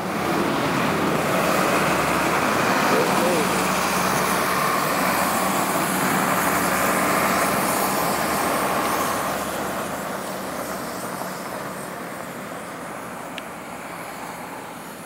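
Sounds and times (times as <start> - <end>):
engine hum: 0.0 - 15.0
tyres hissing on slush: 0.1 - 15.0.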